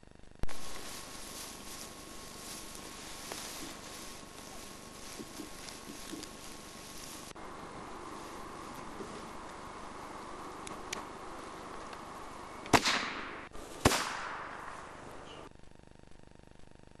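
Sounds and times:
gunshots with echo: 12.7 - 15.2.

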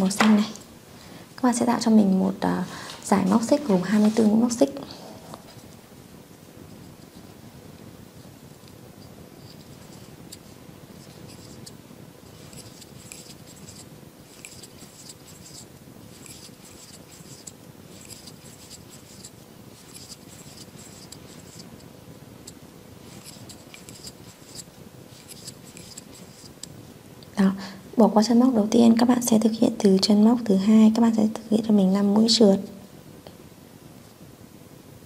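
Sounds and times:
crochet hook rustling yarn: 9.4 - 21.8, 22.4 - 26.7.

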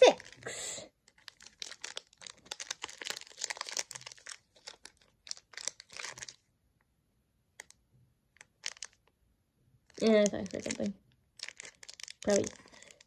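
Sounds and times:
foil wrapper tearing and crinkling: 1.1 - 6.4, 8.4 - 9.0, 10.0 - 13.0.

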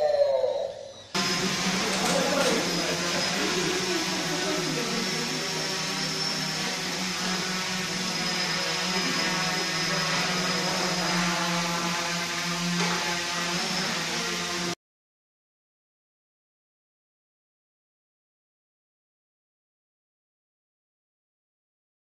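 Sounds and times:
quadcopter propellers whirring: 0.2 - 14.8.

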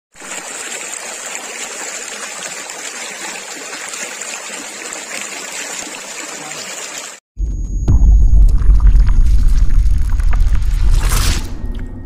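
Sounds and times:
stream running over stones: 0.1 - 7.2.

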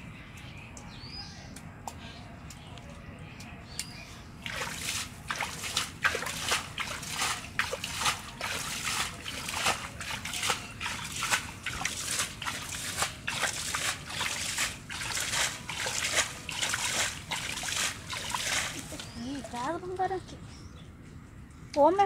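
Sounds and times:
hands splashing in muddy water: 4.4 - 19.5.

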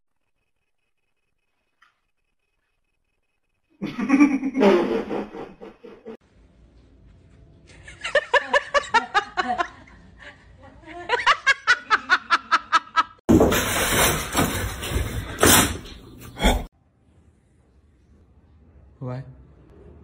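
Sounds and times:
person laughing: 3.8 - 6.2.

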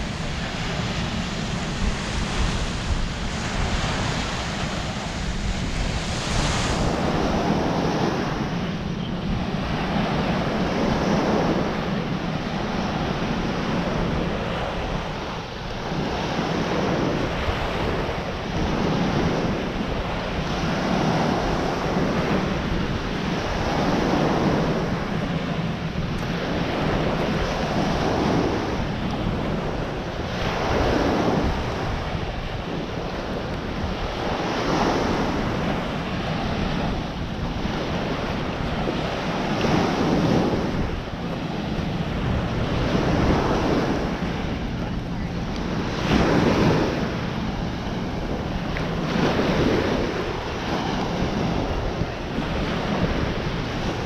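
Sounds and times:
waves breaking on beach: 0.0 - 54.0
wind rumbling on microphone: 0.0 - 54.0.

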